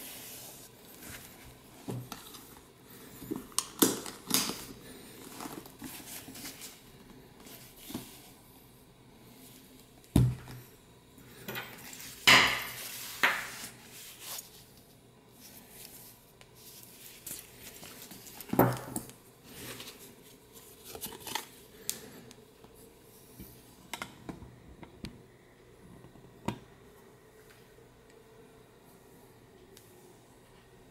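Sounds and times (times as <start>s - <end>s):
leather bag handling: 3.3s - 6.7s.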